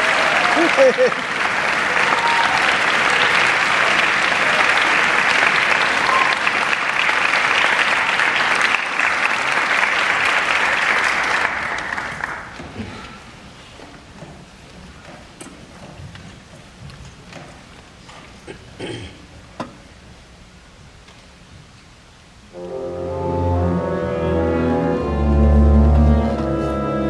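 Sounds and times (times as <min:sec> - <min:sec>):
audience applauding: 0:00.0 - 0:12.6.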